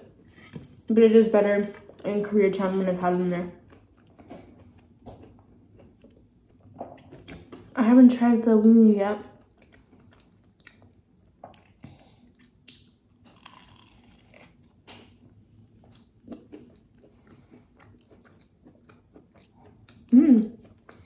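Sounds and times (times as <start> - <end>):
person chewing food: 3.6 - 7.7, 9.4 - 21.0.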